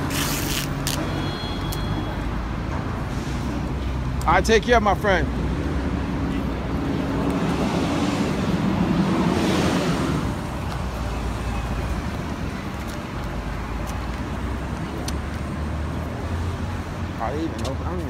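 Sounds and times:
steady traffic rumble: 0.0 - 18.0
vehicle passing close: 5.2 - 12.5.

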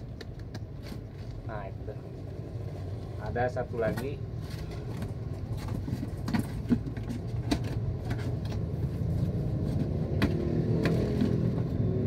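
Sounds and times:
helmet and box clicks and knocks: 3.8 - 8.8, 9.7 - 11.7.

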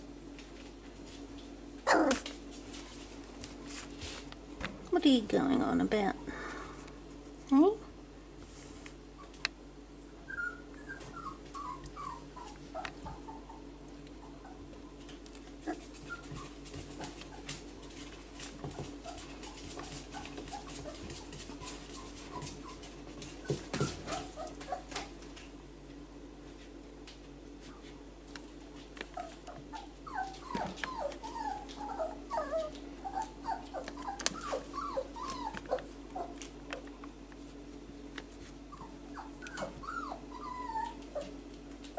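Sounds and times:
puppies whimpering and squeaking: 1.8 - 2.3, 10.2 - 17.5, 19.0 - 25.0, 29.2 - 36.4, 38.7 - 41.9.

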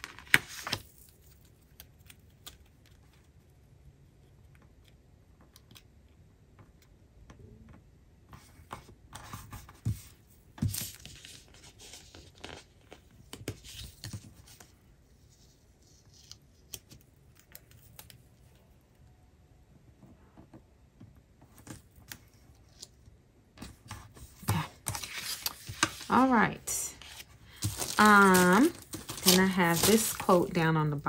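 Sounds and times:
paper and plastic rustling: 23.6 - 31.0.

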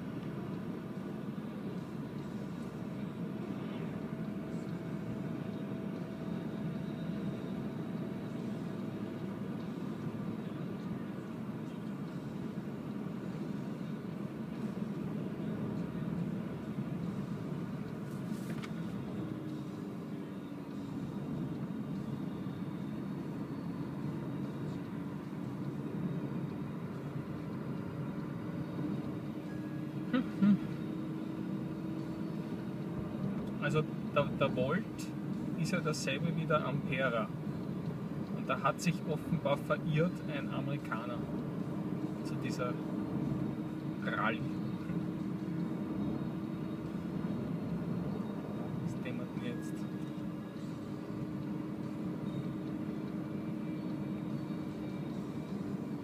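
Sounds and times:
tyre and road noise in car: 0.0 - 38.4
faint steady tones: 0.0 - 56.0.

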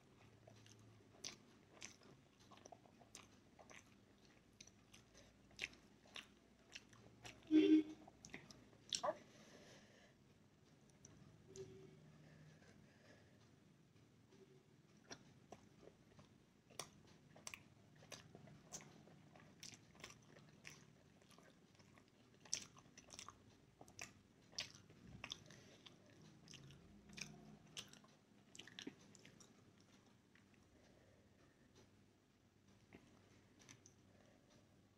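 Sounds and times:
person chewing wet mouth smacks: 0.4 - 7.4, 8.1 - 9.2, 15.0 - 30.6.

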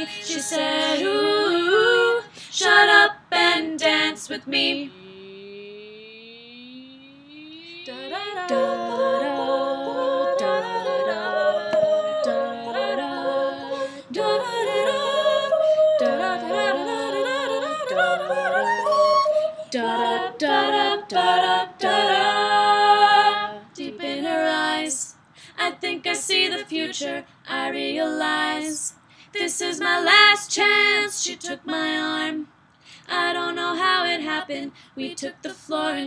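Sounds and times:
a cappella group singing: 0.0 - 5.6, 7.4 - 36.0.

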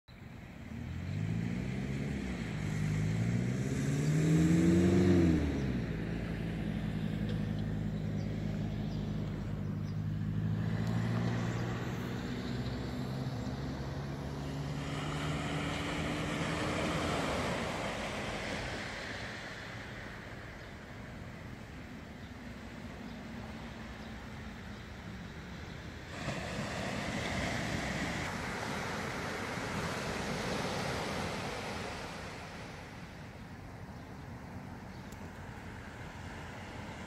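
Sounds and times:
vehicle engine revving: 0.7 - 18.6.

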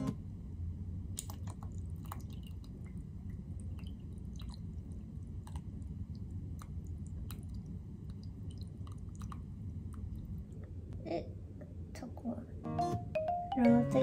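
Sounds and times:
steady low hum: 0.0 - 14.0
liquid pouring into a bowl: 1.2 - 10.3.

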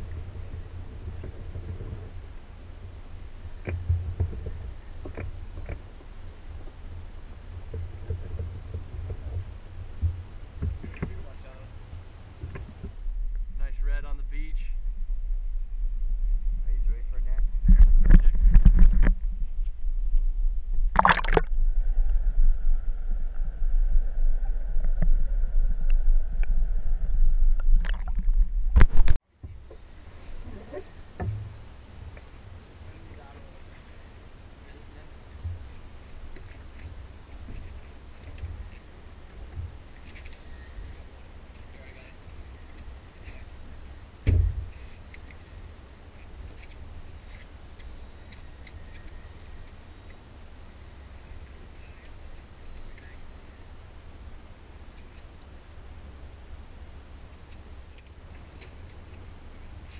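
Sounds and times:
faint high whine: 0.0 - 27.8, 28.4 - 59.9
steady low rumble: 0.0 - 40.0
sharp splashes or knocks: 20.9 - 21.6, 27.6 - 29.2
camera splashing into water: 21.0 - 21.6, 27.6 - 29.2.

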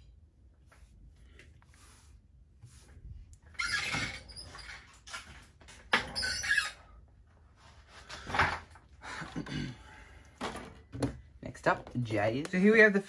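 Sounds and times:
chair squeaking: 3.5 - 6.8.

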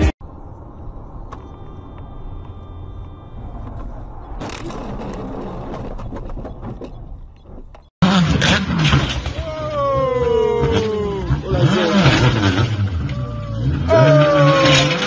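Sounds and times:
road noise inside car: 0.2 - 4.6
scraping and crackling: 3.6 - 7.9.

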